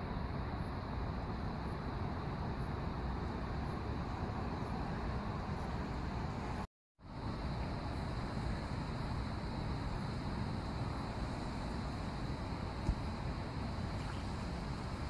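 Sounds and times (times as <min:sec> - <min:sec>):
hiss: 0:07.1 - 0:15.0.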